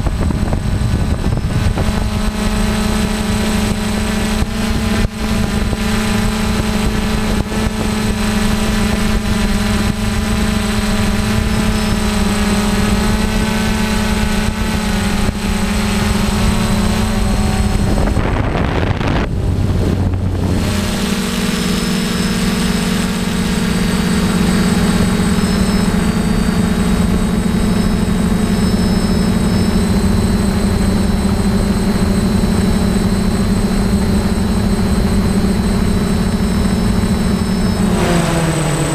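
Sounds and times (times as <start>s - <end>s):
drone motors humming: 0.0s - 38.9s.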